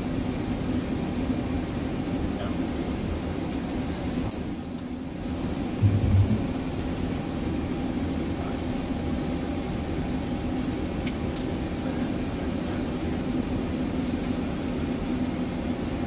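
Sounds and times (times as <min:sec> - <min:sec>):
air conditioning: 0:00.0 - 0:16.0
jet engines humming: 0:00.0 - 0:16.0
low thump: 0:05.8 - 0:06.4.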